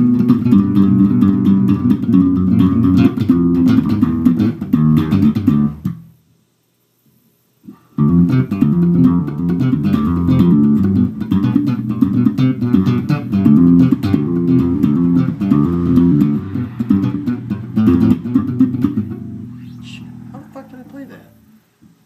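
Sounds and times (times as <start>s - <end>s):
funky electric bass line: 0.0s - 6.1s, 7.7s - 20.5s.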